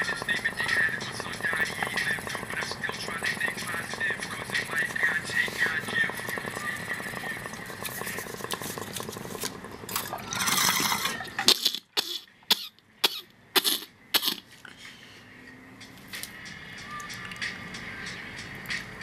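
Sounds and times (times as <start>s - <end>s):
bong water bubbling: 0.0s - 14.3s
person coughing: 12.0s - 14.4s.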